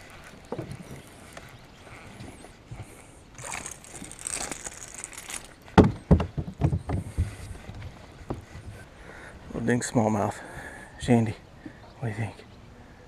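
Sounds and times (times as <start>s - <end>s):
fish splashing at water surface: 3.4s - 5.6s
fishing reel reeling in: 3.4s - 5.6s.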